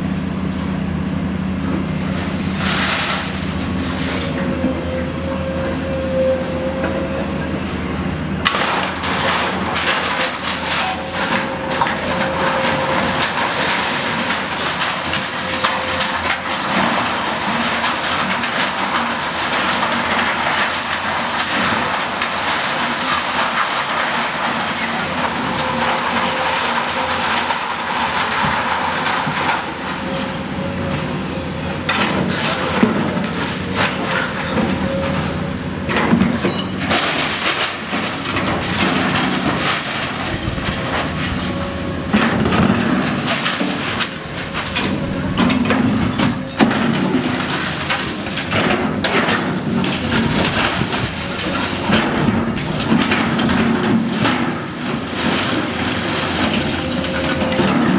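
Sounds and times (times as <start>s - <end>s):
excavator engine whining: 0.0s - 57.9s
debris crunching and clattering: 2.5s - 4.7s, 8.4s - 31.2s, 31.8s - 57.9s.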